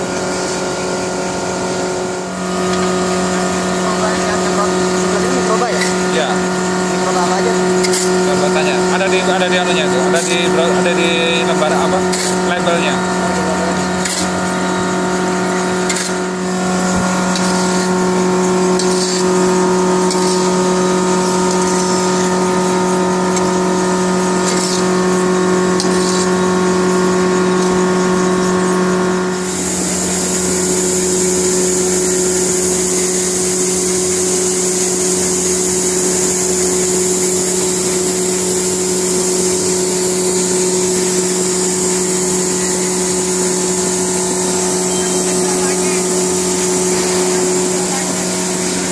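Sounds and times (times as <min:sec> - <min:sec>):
loud steady hiss: 0:00.0 - 0:48.9
machinery humming: 0:00.0 - 0:48.9
scraping strokes: 0:12.0 - 0:12.6, 0:13.8 - 0:14.7, 0:15.6 - 0:23.6, 0:24.2 - 0:26.6.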